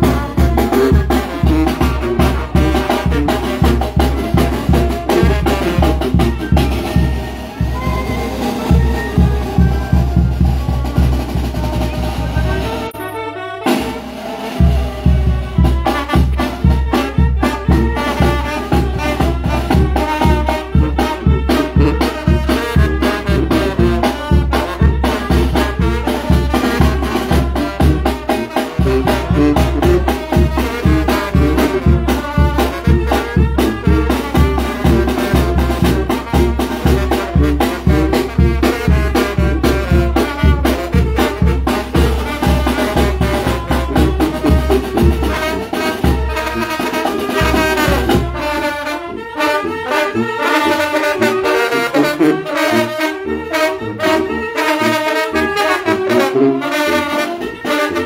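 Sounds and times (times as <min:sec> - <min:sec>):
bass drum beat: 0:00.0 - 0:12.8, 0:14.6 - 0:48.6
saxophones: 0:00.0 - 0:58.0
trombones: 0:00.0 - 0:58.0
trumpets: 0:00.0 - 0:58.0.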